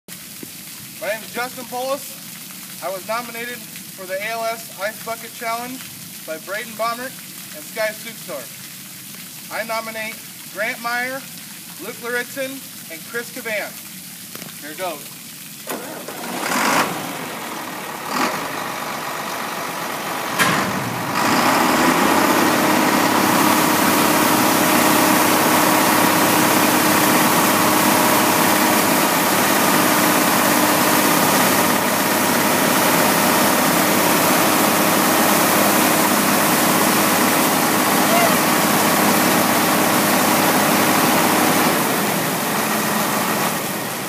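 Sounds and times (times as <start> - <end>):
water splashing onto concrete: 0.1 - 44.0
tractor engine and auger hum: 15.7 - 44.0.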